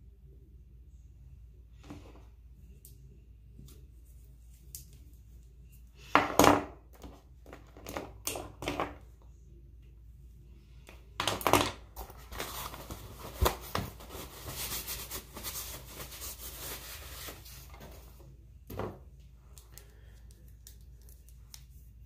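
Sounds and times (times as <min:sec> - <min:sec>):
rustling and scraping containers: 0:11.2 - 0:19.0.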